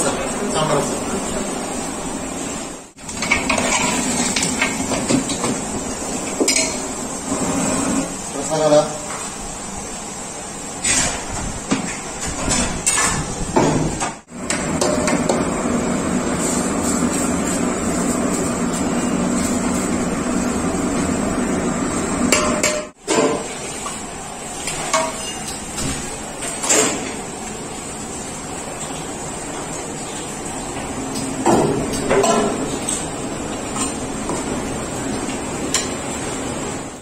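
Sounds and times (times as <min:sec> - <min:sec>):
metal pots clanking and scraping: 0:03.0 - 0:08.2, 0:22.3 - 0:23.8, 0:24.6 - 0:25.6, 0:31.5 - 0:33.1.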